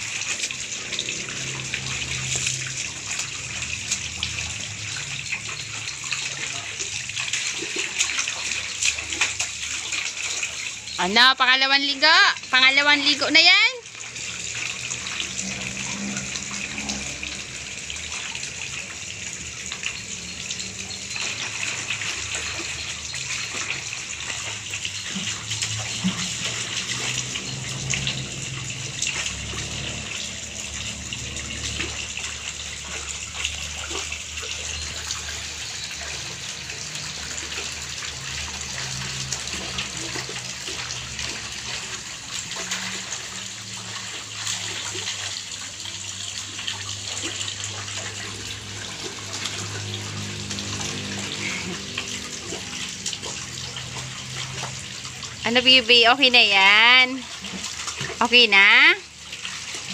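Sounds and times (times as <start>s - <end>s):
water splashing in metal basin: 0.0s - 59.9s.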